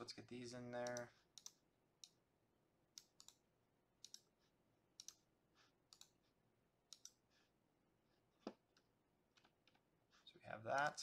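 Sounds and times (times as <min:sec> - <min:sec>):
mouse and keyboard clicking: 0:06.9 - 0:07.2.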